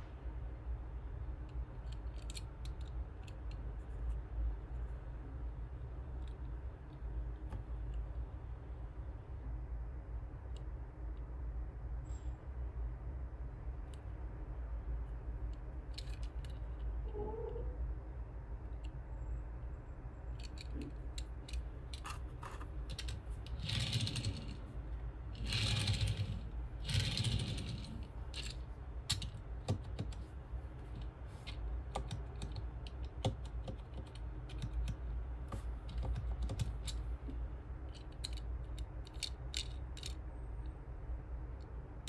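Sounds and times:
toy car clicking on table: 20.4 - 24.6, 25.4 - 30.2
toy car rolling on table: 22.0 - 24.7, 25.4 - 29.3.

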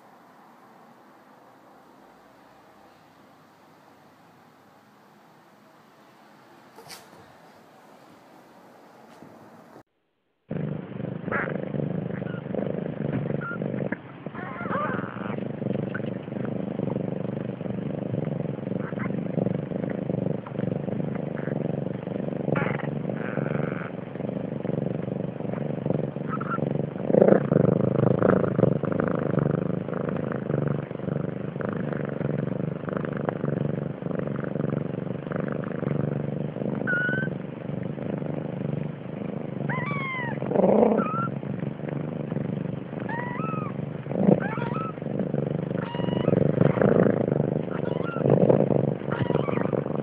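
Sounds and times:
cats purring: 0.0 - 9.9, 10.5 - 50.0
kittens mewing: 14.3 - 16.1, 39.7 - 41.3, 43.0 - 45.0, 45.8 - 46.9, 47.6 - 48.4, 49.0 - 49.9.

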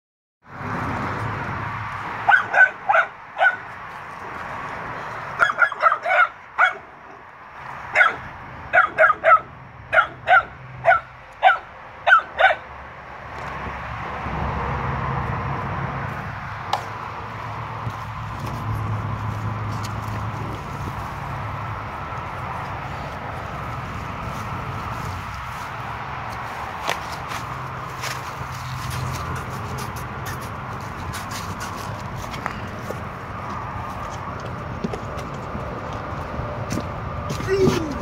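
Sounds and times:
dog barking: 2.2 - 3.7, 5.4 - 7.2, 7.9 - 12.7.

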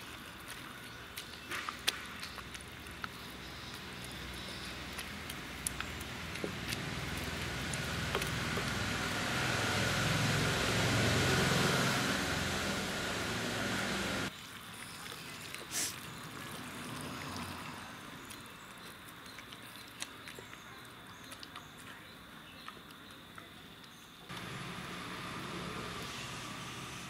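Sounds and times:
masher squishing food: 0.0 - 10.6, 14.3 - 26.0
loud rushing noise: 8.9 - 14.3.

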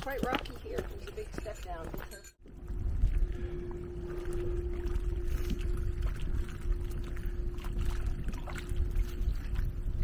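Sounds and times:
wind buffeting microphone: 0.0 - 10.0
faint steady hum: 2.4 - 10.0.

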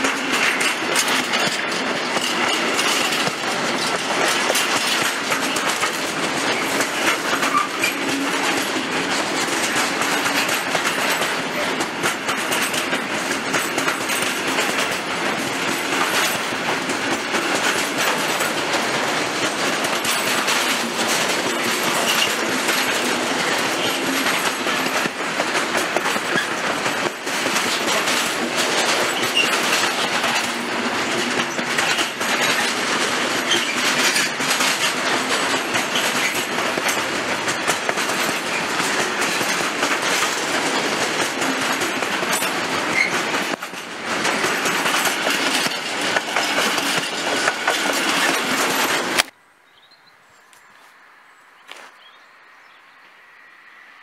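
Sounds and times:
train rolling with wheel clatter: 0.0 - 49.4.

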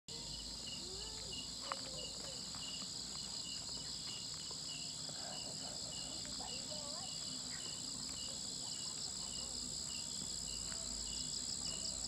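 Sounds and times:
cricket chirping: 0.1 - 12.0
insects trilling: 0.1 - 12.0.

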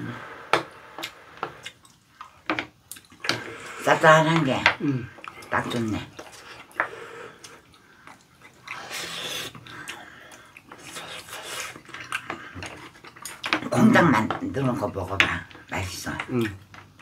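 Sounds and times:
chewing food: 1.0 - 17.0.

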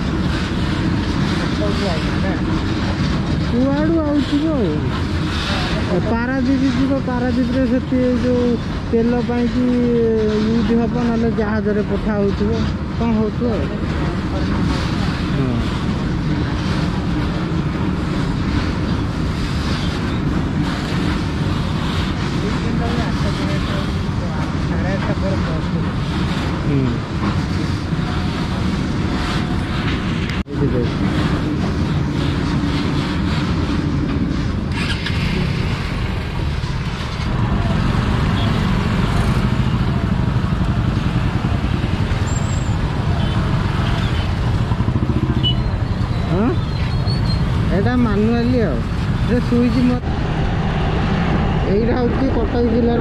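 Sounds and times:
wind rushing over microphone: 0.0 - 53.0
motorcycle engine: 30.5 - 53.0.

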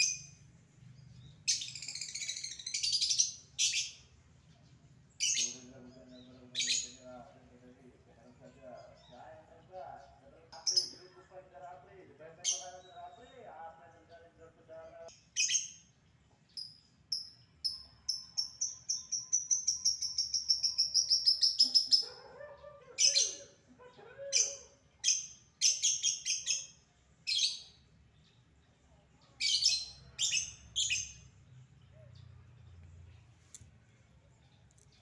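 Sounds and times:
bird sharp chirps: 0.0 - 0.4, 1.0 - 4.2, 15.1 - 22.2
lovebird trilling: 1.4 - 4.0.

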